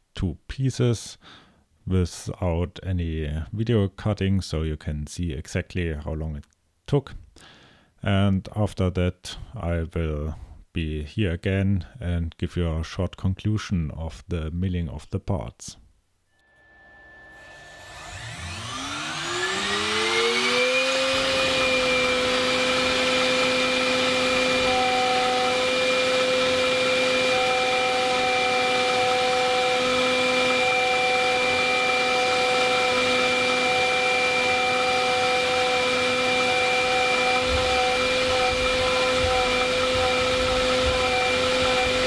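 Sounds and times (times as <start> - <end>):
lower tone: 16.3 - 20.8
end mill cutting steel: 16.4 - 42.0
milling machine spindle whine: 16.6 - 42.0.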